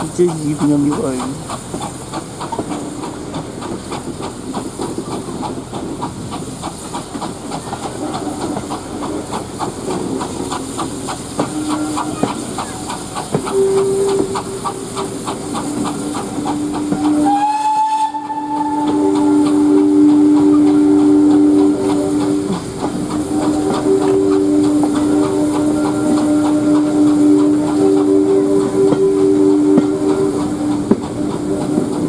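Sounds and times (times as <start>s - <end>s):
steam locomotive exhaust beating: 0.0s - 32.0s
train wheels on rails: 0.0s - 32.0s
steam whistle: 11.1s - 32.0s.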